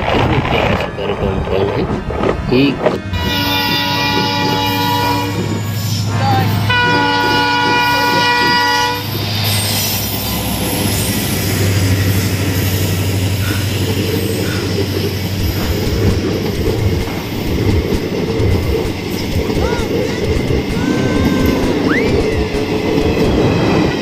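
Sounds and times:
locomotive engine hum: 0.0s - 24.0s
train coaches rumbling on track: 0.0s - 24.0s
locomotive horn blasts: 3.0s - 5.6s, 6.6s - 9.2s.

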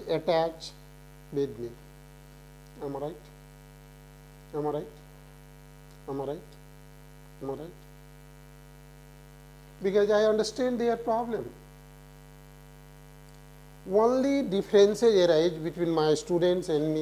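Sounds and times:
electrical mains hum: 0.0s - 17.0s.

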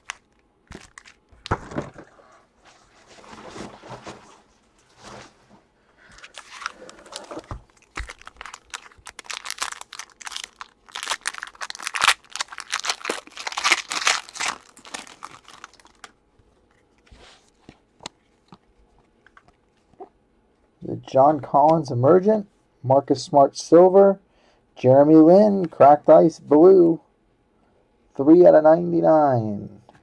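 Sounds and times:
foil wrapper crinkling: 0.0s - 1.6s, 6.2s - 16.2s.

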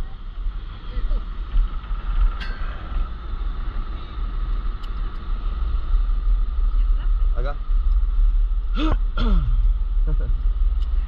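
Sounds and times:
motorboat engine running: 0.0s - 7.3s
wind buffeting microphone: 0.0s - 8.7s.

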